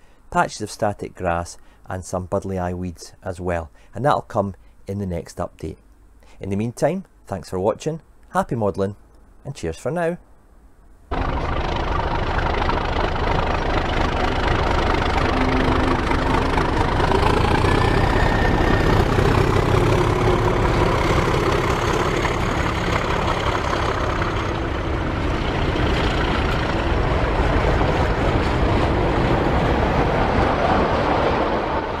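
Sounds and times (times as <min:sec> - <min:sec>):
heavy engine idling: 0:11.1 - 0:29.8.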